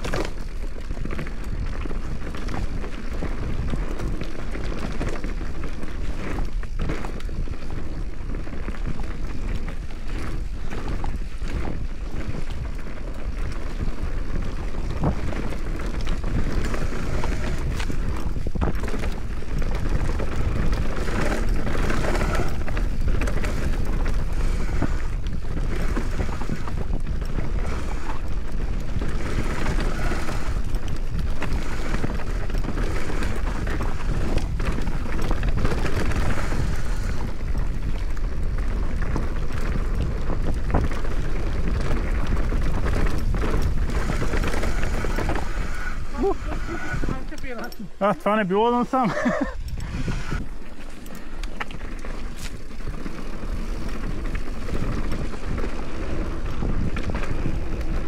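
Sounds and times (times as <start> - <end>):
bike knocks and rattles: 0.0 - 46.3
tyres on dirt: 0.0 - 58.0
wind buffeting microphone: 0.0 - 58.0.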